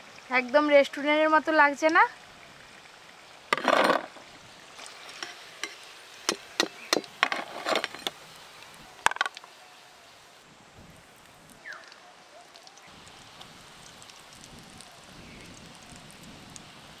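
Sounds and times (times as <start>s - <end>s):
faint frying sizzle: 0.0s - 17.0s
metal spoon scraping and clinking: 5.0s - 5.8s, 7.2s - 8.2s.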